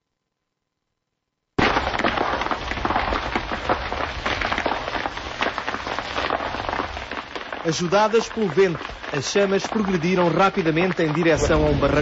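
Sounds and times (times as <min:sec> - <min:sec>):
brush fire crackling and popping: 0:01.6 - 0:12.0.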